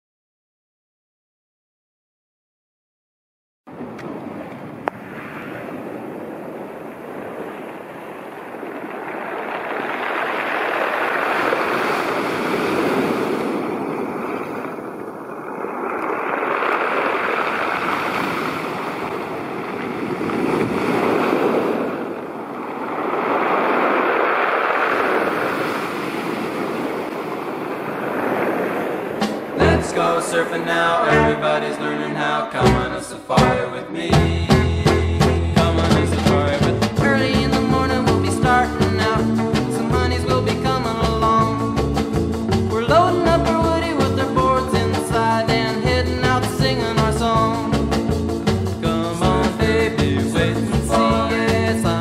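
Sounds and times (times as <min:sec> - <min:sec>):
waves breaking on pebble beach: 0:04.2 - 0:31.0.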